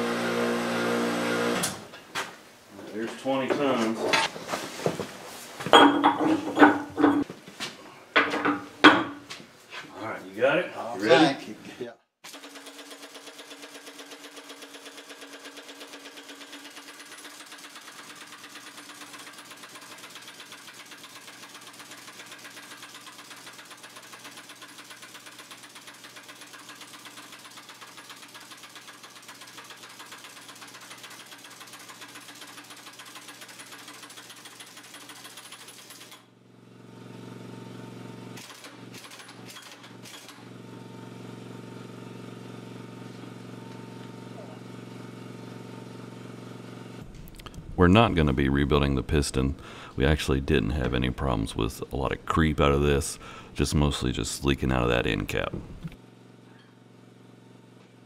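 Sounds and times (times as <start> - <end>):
impact wrench hammering rapidly: 12.3 - 36.2
low steady hum: 47.0 - 56.0.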